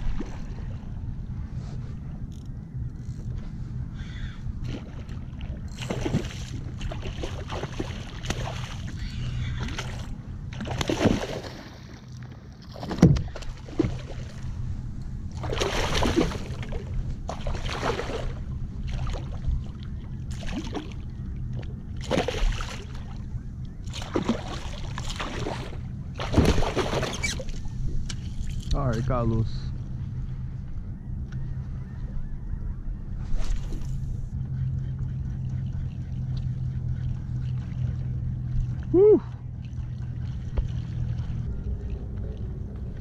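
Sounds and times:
fish splashing in water: 0:05.8 - 0:10.0, 0:10.6 - 0:11.9, 0:15.4 - 0:19.4, 0:22.0 - 0:23.1, 0:23.9 - 0:27.6.

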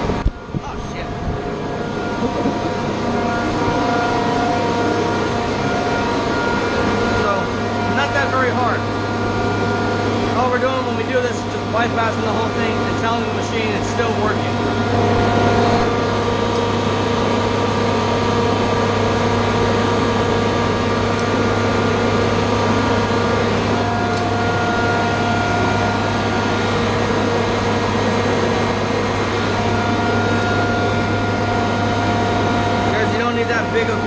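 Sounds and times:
air compressor humming: 0:00.0 - 0:34.0.

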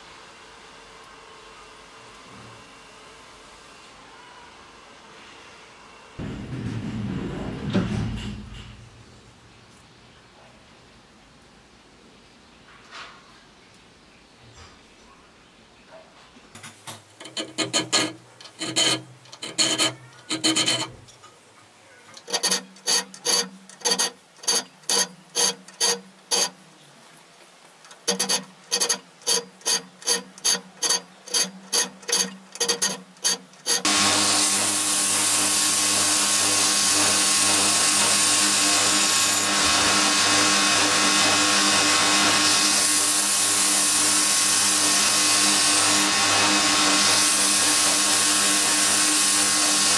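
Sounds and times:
belt grinder running: 0:17.2 - 0:21.0, 0:22.2 - 0:26.6, 0:27.9 - 0:49.9
file strokes on steel: 0:17.2 - 0:21.1, 0:22.2 - 0:26.6, 0:27.9 - 0:49.9.

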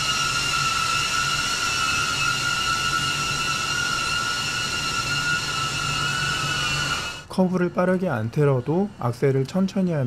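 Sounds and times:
drone propellers whining: 0:00.0 - 0:07.3.

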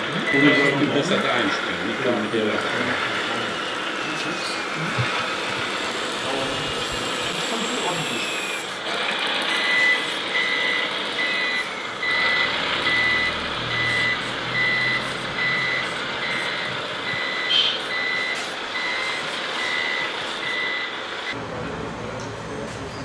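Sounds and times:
reversing beeper: 0:00.0 - 0:21.4
model truck engine sound: 0:00.0 - 0:23.0.

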